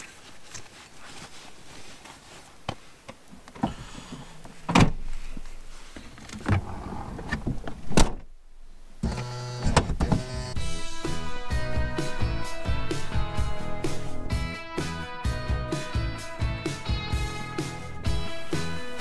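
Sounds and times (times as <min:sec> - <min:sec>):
music: 0:10.4 - 0:19.0.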